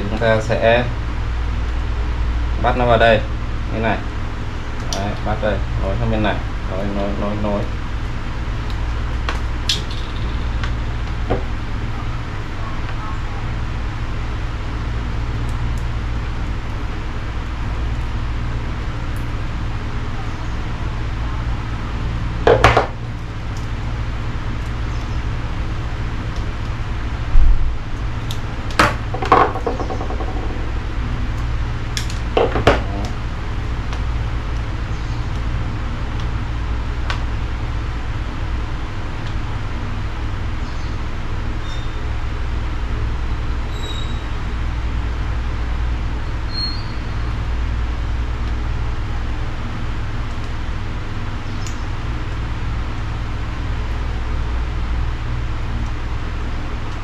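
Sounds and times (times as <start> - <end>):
low background rumble: 0.0 - 57.0
tools knocking and clattering: 28.8 - 30.7.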